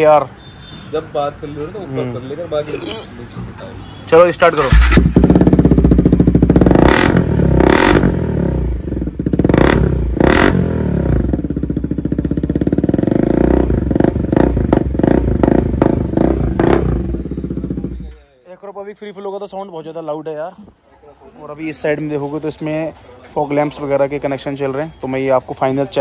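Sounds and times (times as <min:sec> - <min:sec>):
motorcycle engine revving: 0:04.6 - 0:18.1.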